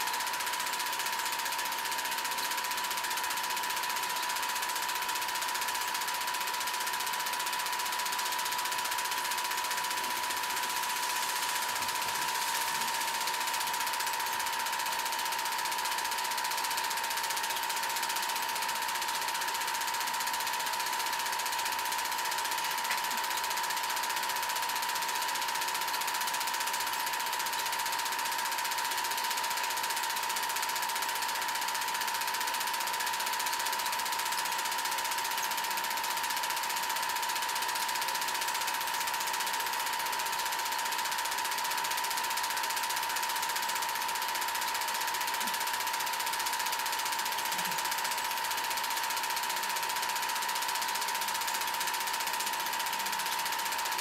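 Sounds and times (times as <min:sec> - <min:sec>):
film projector clattering: 0:00.0 - 0:54.0
projector whining tone: 0:05.6 - 0:20.3.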